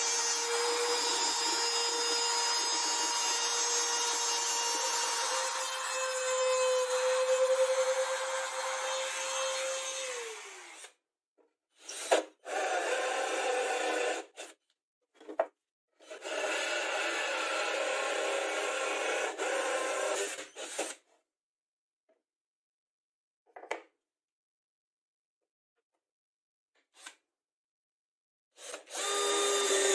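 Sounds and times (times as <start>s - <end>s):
drill boring into board: 0.0s - 11.0s, 11.8s - 14.5s, 16.0s - 21.0s, 28.6s - 29.9s
trim router whining: 28.6s - 29.9s.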